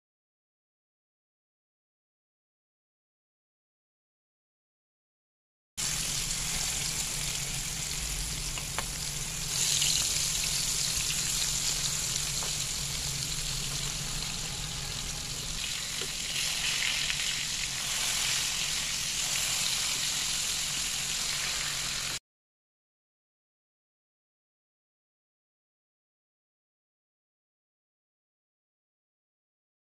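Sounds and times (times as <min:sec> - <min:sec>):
fish frying in hot oil: 0:05.8 - 0:22.2.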